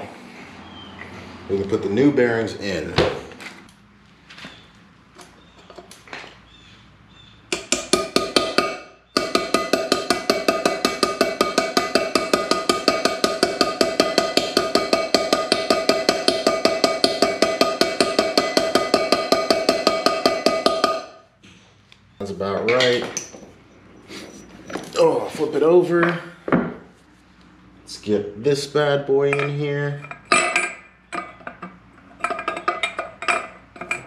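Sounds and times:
hammer striking metal driver: 0:07.5 - 0:21.2.

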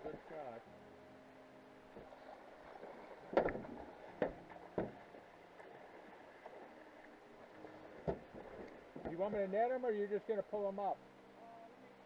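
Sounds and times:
faint steady hum: 0:00.0 - 0:12.0
sharp knocks: 0:03.3 - 0:05.0.

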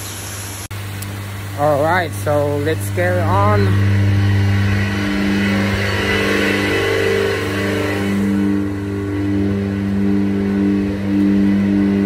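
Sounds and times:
hissing rush: 0:00.0 - 0:12.0
machinery hum: 0:00.0 - 0:12.0.

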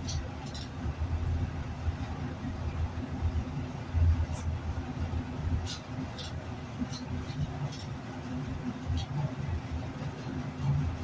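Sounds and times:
steady low hum: 0:00.0 - 0:11.0
knife scraping against bone: 0:05.6 - 0:08.0.

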